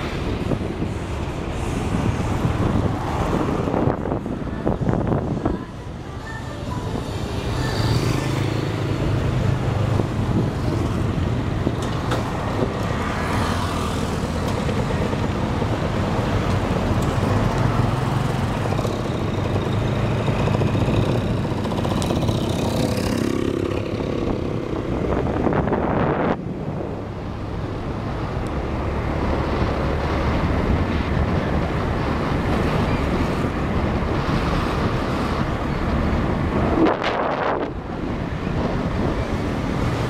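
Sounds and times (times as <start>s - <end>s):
road and traffic noise: 0.0s - 40.0s
motorbike engine cruising: 13.2s - 35.5s.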